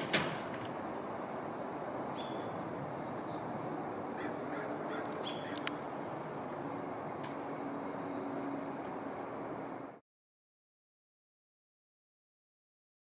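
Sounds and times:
outdoor background noise: 0.0s - 10.0s
faint bird chirps: 2.1s - 5.7s.

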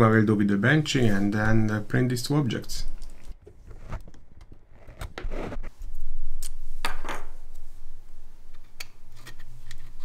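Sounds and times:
handling noises: 2.9s - 5.7s.

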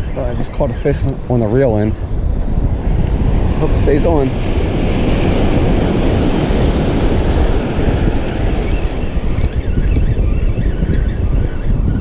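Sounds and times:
wind buffeting microphone: 0.0s - 12.0s
ocean surf breaking: 1.0s - 9.8s
faint ticks: 8.2s - 11.0s.

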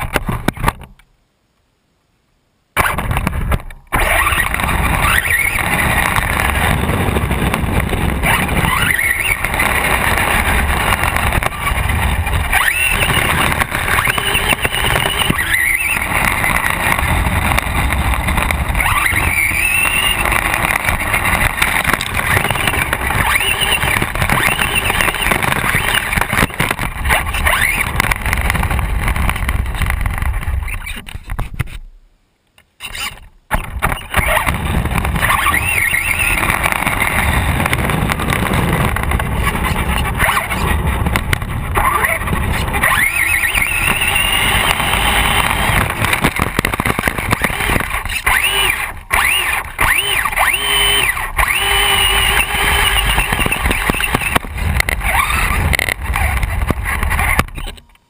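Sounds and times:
electric motor whining: 4.0s - 26.8s, 34.0s - 40.6s, 41.8s - 57.8s
tyres rattling on pavement: 4.1s - 30.6s, 33.6s - 57.7s.

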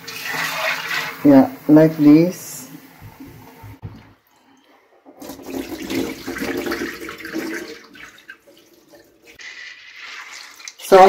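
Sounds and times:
water splashing into a sink: 5.1s - 11.0s.

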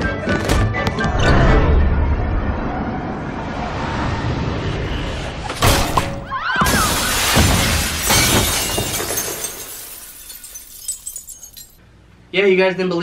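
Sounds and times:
glass crashing: 5.6s - 11.8s
glass shards tinkling: 8.0s - 11.8s.

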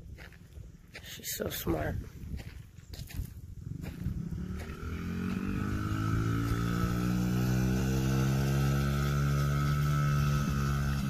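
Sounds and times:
dirt bike engine under throttle: 3.1s - 11.0s.

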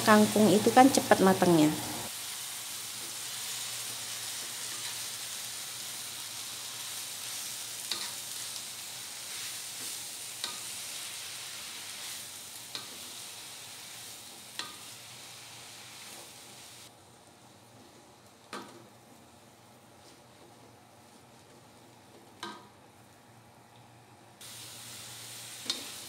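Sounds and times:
greens sizzling in a wok: 0.0s - 19.2s, 24.4s - 26.0s.

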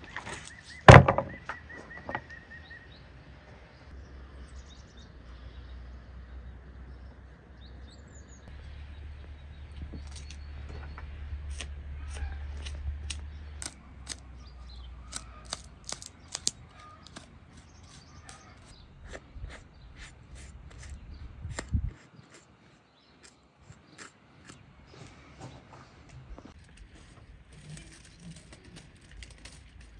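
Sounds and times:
birds chirping: 0.0s - 29.9s.

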